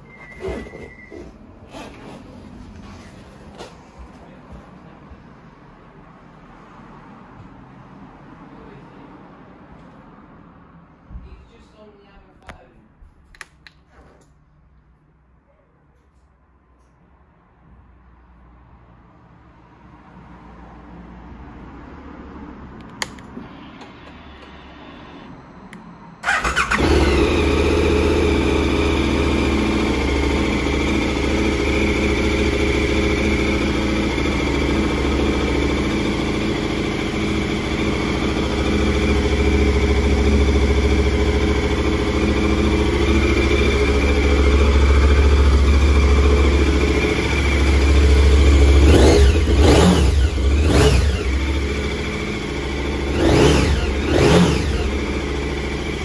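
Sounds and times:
motorcycle engine starting and idling: 26.2s - 56.0s
motorcycle throttle blips: 26.2s - 56.0s.

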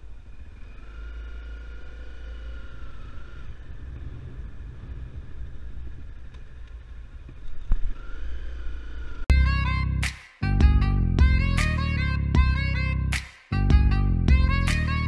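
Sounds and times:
motorbike engine running: 0.0s - 9.9s, 13.6s - 15.0s
wind on microphone: 3.5s - 6.2s.

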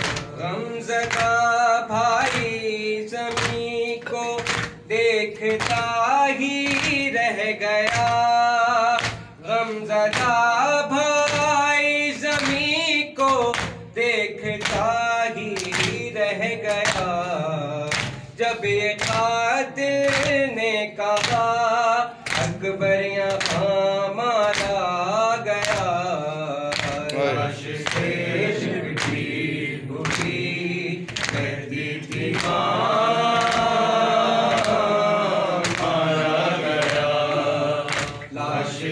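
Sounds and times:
man singing lament: 0.0s - 27.7s
men singing in chorus: 0.0s - 38.9s
rhythmic chest-beating slaps: 0.0s - 38.9s.

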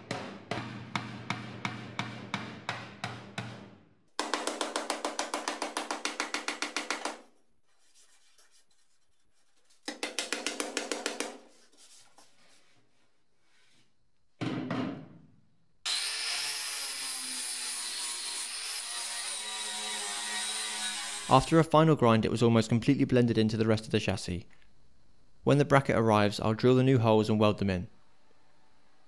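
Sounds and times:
hammer blows on sheet steel: 0.0s - 7.2s
angle grinder on metal: 15.9s - 21.4s.

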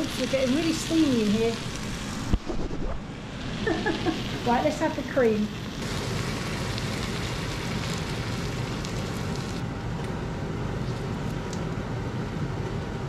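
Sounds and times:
chicken sizzling in a pot: 0.0s - 2.4s, 3.2s - 9.6s
extractor fan whirring: 0.0s - 13.0s.

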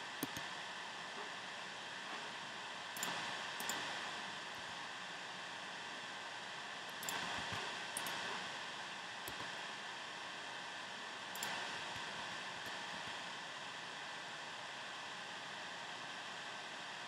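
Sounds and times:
microphone hiss: 0.0s - 17.0s
soft computer clicks: 0.2s - 0.5s, 3.0s - 3.9s, 7.0s - 8.3s, 11.3s - 12.8s.

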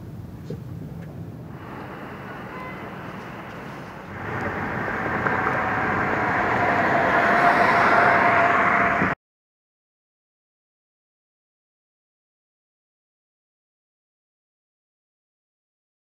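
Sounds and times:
road noise inside moving car: 0.0s - 9.2s.

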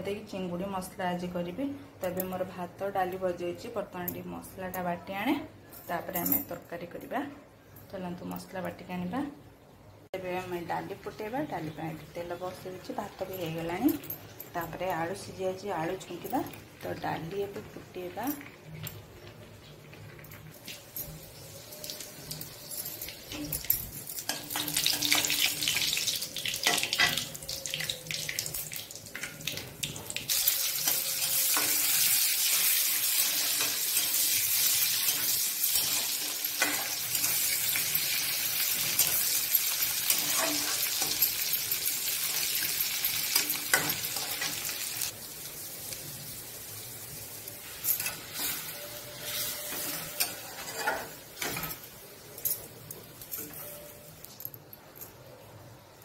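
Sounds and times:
seeds and chilli crackling: 10.3s - 54.4s
hot oil sizzling in a pan: 24.2s - 51.4s
metal spatula scraping a pan: 30.3s - 41.6s, 47.6s - 51.8s.

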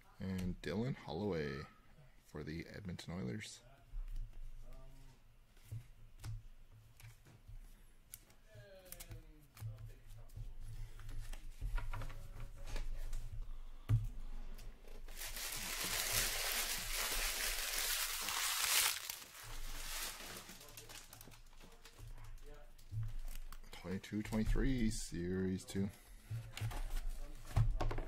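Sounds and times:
wrapper tearing: 15.1s - 21.4s.

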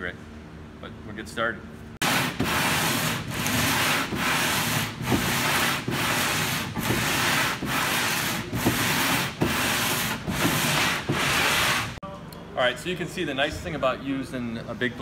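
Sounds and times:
coarse sandpaper rasping strokes: 2.0s - 12.0s.

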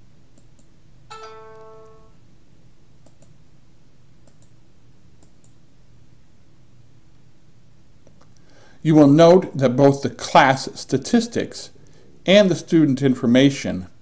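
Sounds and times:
low steady hum: 0.0s - 14.0s
brief pitched chime: 1.1s - 2.2s
computer mouse clicks: 3.0s - 3.4s, 4.2s - 4.6s, 5.2s - 5.6s.

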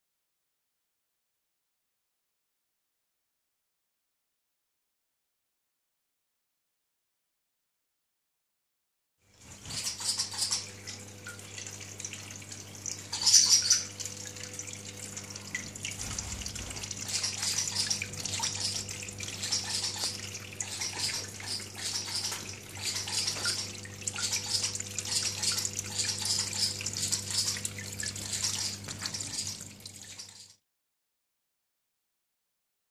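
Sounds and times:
water trickling and splashing: 9.3s - 30.6s
steady low hum: 9.4s - 30.1s.

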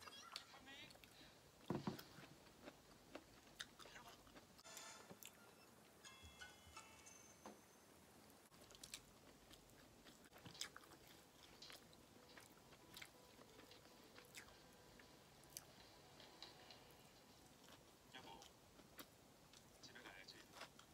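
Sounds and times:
soft chewing: 0.0s - 5.5s, 8.2s - 20.9s.

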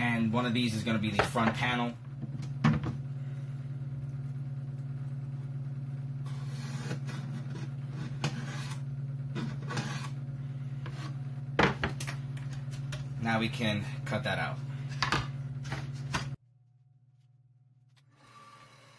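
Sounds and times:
steady low hum: 0.0s - 18.9s.

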